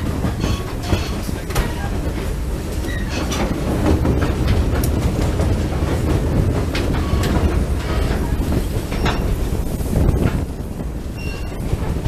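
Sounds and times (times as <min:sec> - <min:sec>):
metallic clacks and knocks: 0:00.0 - 0:01.9
train wheels rumbling on rail: 0:00.0 - 0:12.0.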